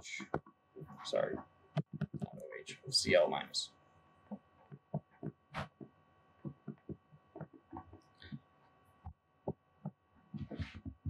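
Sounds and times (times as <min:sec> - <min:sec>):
faint electrical hum: 0:00.0 - 0:11.0
stylus tapping on screen: 0:00.2 - 0:02.4, 0:04.3 - 0:08.4.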